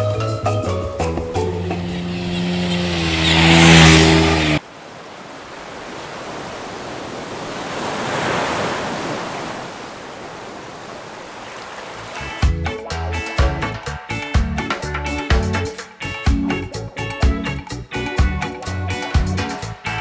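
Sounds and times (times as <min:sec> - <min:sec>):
music with rising rush of noise: 0:00.0 - 0:04.6
small waves washing over rocks: 0:04.6 - 0:12.2.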